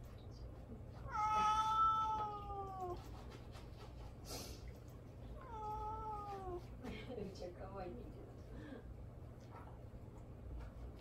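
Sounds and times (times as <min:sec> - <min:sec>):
cat meowing: 0:01.0 - 0:03.1, 0:05.4 - 0:06.7.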